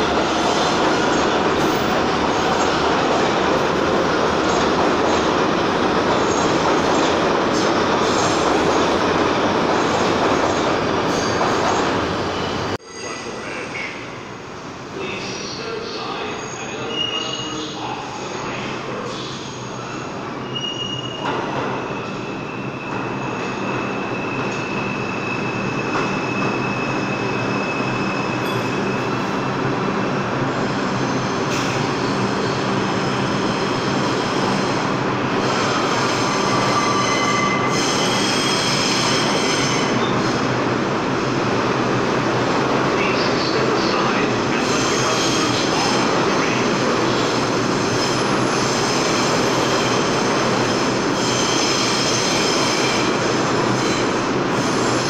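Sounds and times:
wheel squeals on rails: 0:20.4 - 0:29.2, 0:35.6 - 0:40.2.

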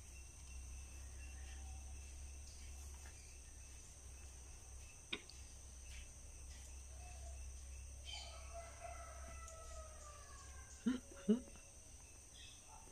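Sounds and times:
crickets chirring: 0:00.0 - 0:12.9.

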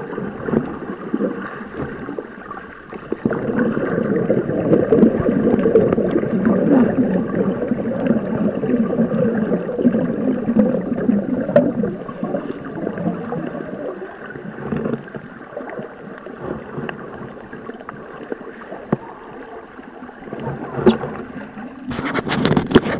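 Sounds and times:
underwater rushing crackle: 0:00.0 - 0:22.9.

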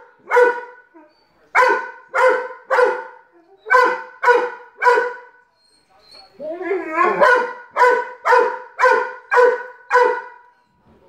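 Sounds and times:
dog barking: 0:00.0 - 0:00.9, 0:01.6 - 0:05.4, 0:07.1 - 0:10.5.

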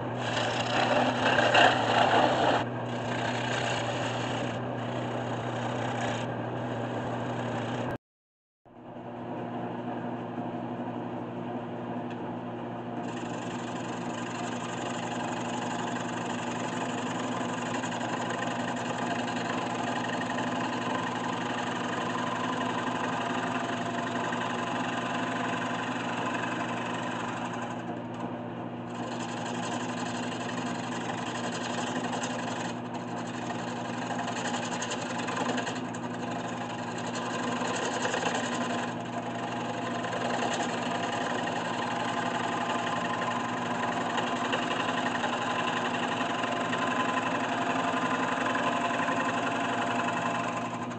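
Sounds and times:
lathe motor hum: 0:00.0 - 0:08.0, 0:12.4 - 0:50.9
turning tool cutting wood hiss: 0:13.0 - 0:28.2, 0:28.9 - 0:50.9.

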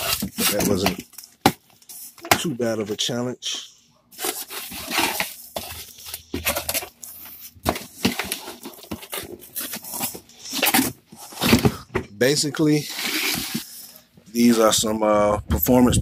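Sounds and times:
cardboard scraping and rustling: 0:00.0 - 0:01.2, 0:04.1 - 0:14.8.

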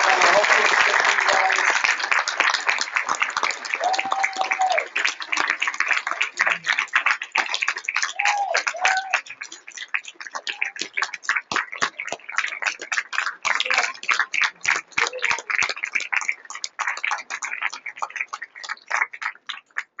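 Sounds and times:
audience applauding: 0:00.0 - 0:20.0
voices: 0:14.9 - 0:15.6.

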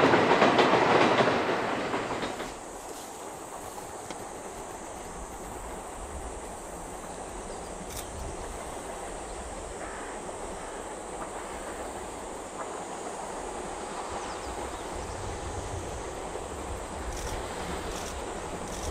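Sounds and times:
steam locomotive rumble and hiss: 0:00.0 - 0:18.9.

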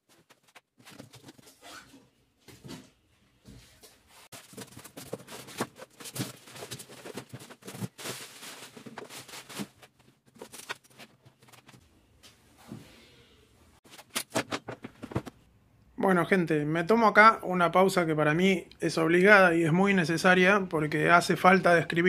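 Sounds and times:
cardboard flaps rustling: 0:04.3 - 0:11.8
plastic bag crinkling: 0:04.4 - 0:11.7.

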